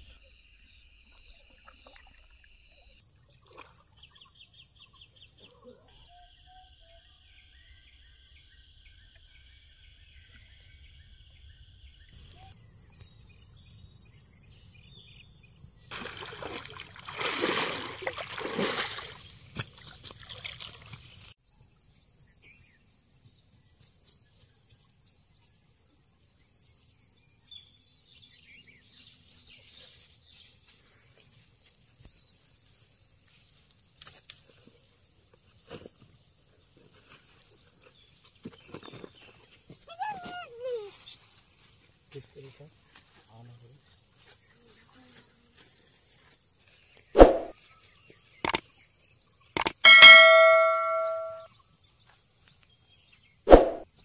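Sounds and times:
fish splashing in water: 15.9s - 21.2s.

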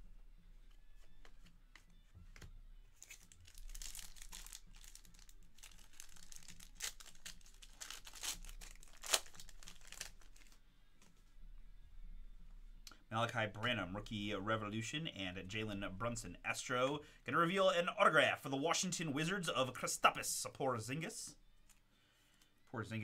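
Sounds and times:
trading cards rustling and sliding: 0.7s - 11.3s.

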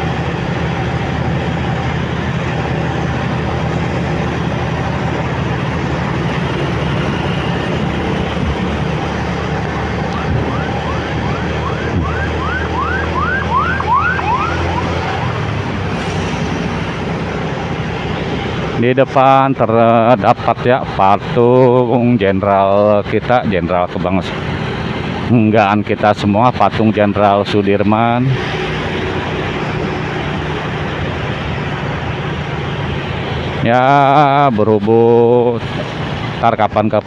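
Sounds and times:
motorcycle engine rumble: 0.0s - 19.0s
emergency vehicle siren whooping: 5.8s - 17.3s.

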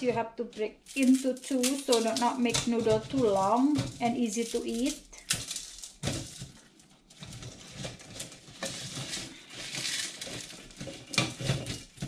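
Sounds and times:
dry noodles crackling and crunching: 0.0s - 12.0s.

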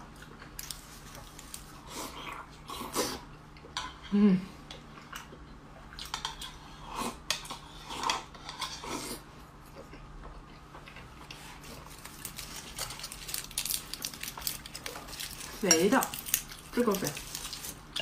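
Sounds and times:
wet chewing: 9.7s - 18.0s.

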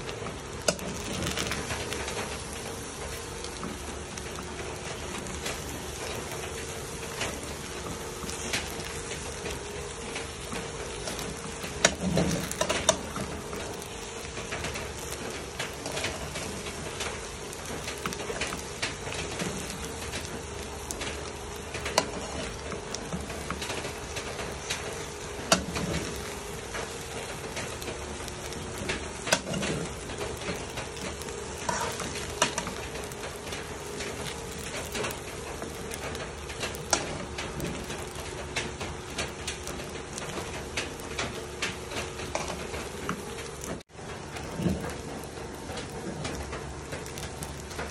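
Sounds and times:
food sizzling in a pan: 0.0s - 47.9s
spatula scraping and knocking pan: 28.8s - 33.2s.

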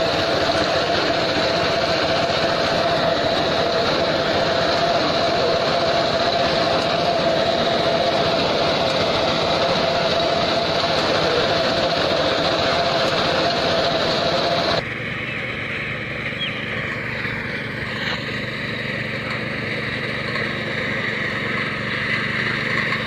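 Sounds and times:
mini tractor reaper running: 0.0s - 23.0s.

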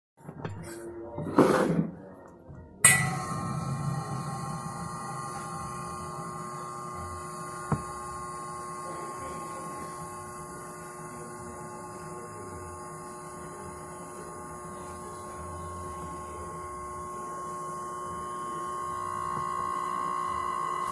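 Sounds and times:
steamer hissing: 2.8s - 11.0s.

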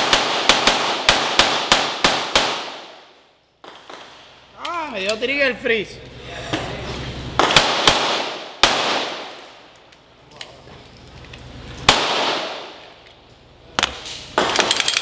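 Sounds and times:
pistol shots echoing: 0.0s - 4.3s, 7.4s - 9.7s, 11.8s - 12.9s.

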